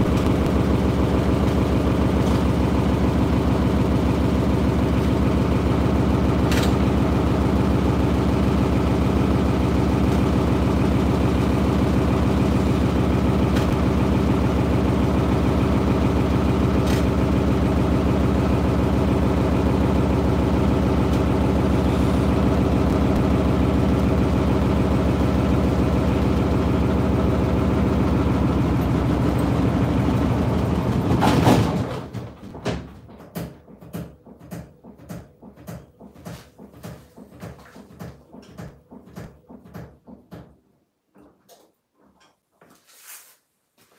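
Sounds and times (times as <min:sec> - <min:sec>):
washing machine spinning: 0:00.0 - 0:42.3.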